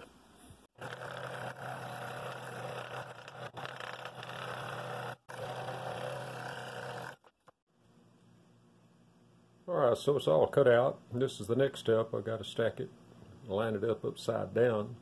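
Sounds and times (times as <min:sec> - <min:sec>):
scroll saw cutting wood: 0:00.8 - 0:07.6.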